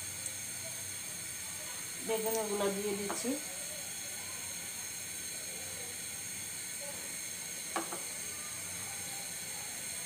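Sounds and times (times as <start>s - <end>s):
hot oil hissing: 0.0s - 10.0s.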